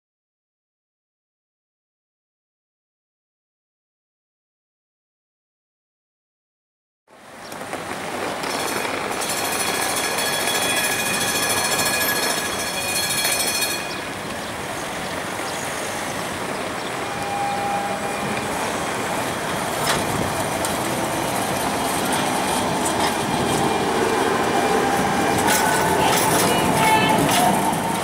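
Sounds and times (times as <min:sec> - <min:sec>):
traffic: 0:07.1 - 0:28.0
tram passing on rails: 0:07.1 - 0:28.0
high whine: 0:15.4 - 0:28.0.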